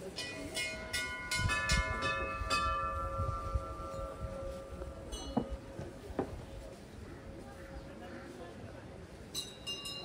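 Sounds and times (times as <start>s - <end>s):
metal temple bells ringing: 0.0s - 5.8s, 9.3s - 10.0s.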